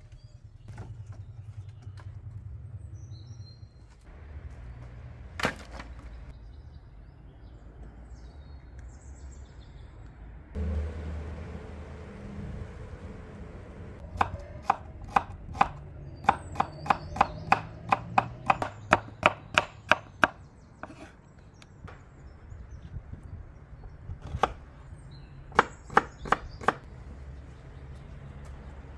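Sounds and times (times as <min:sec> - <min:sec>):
knife chopping on wooden board: 0:14.2 - 0:21.1.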